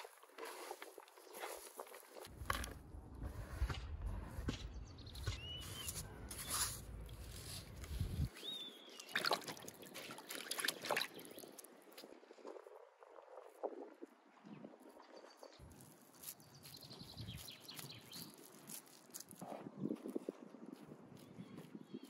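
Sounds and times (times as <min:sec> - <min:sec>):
bird chirping: 0:04.5 - 0:06.8, 0:08.2 - 0:11.6, 0:15.2 - 0:18.5
small splashes and clicks: 0:08.9 - 0:12.6
water sloshing in a bowl: 0:09.0 - 0:11.6.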